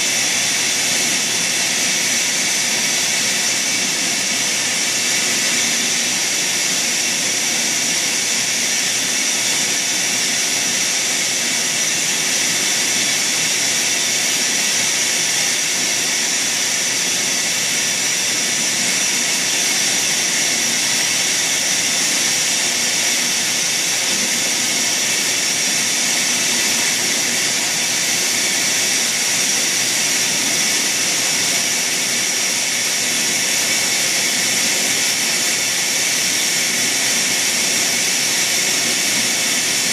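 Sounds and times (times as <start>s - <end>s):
machine hiss with high whine: 0.0s - 39.9s.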